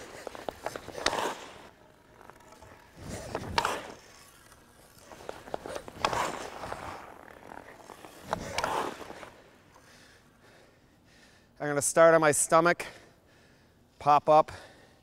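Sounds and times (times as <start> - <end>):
stick clicking on puck: 0.0 - 9.8
skate blades scraping ice: 0.0 - 10.4.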